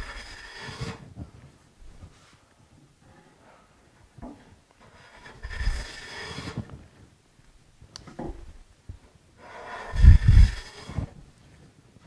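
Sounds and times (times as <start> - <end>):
hand plane cutting wood: 0.0 - 1.0, 4.8 - 6.7, 9.4 - 11.1.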